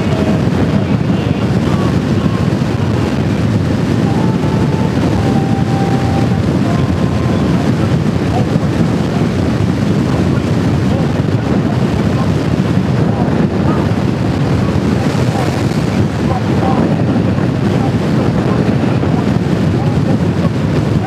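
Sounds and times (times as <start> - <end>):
motorcycle engine: 0.0 - 12.9
road noise: 0.0 - 21.0
wind buffeting microphone: 0.0 - 21.0.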